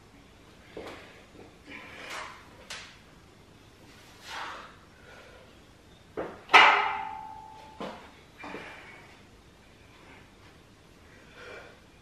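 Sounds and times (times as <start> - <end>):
loud ringing metal clang: 6.5 - 7.9.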